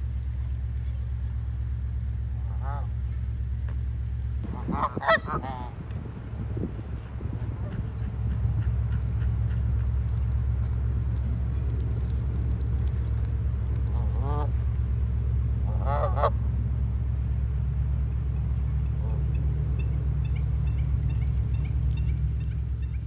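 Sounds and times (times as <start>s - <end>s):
steady low rumble: 0.0s - 23.0s
geese honking: 2.4s - 3.0s, 4.4s - 5.8s, 7.0s - 16.4s, 18.3s - 23.0s.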